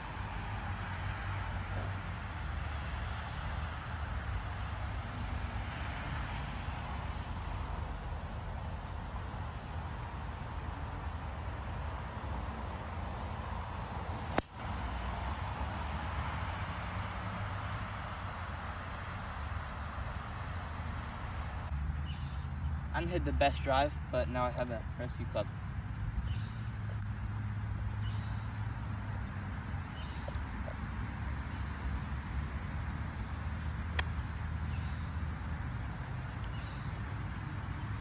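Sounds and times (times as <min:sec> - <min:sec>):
insects trilling: 0:00.0 - 0:38.0
golf club striking ball: 0:14.3 - 0:14.9.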